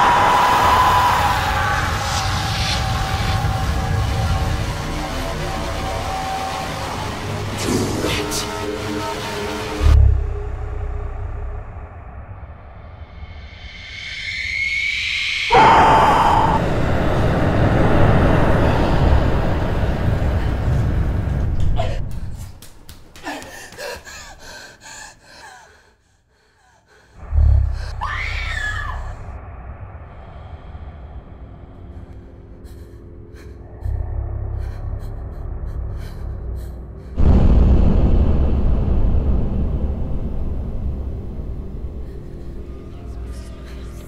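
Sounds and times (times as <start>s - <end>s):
rising shriek: 0.0s - 7.4s, 13.0s - 20.0s, 27.5s - 30.8s
deep rumble: 0.0s - 7.7s, 15.6s - 22.5s, 27.2s - 44.0s
sudden loud hit: 37.2s - 42.1s.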